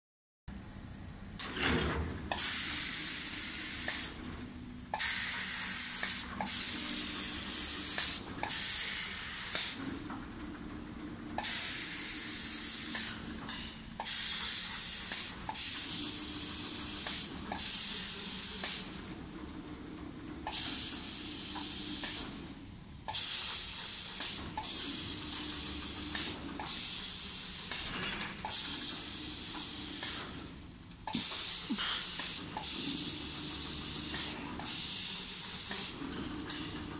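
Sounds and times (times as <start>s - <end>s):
spray gun hissing in bursts: 2.4s - 4.2s, 5.0s - 9.9s, 11.4s - 19.0s, 20.5s - 22.4s, 23.1s - 30.4s, 31.1s - 36.1s.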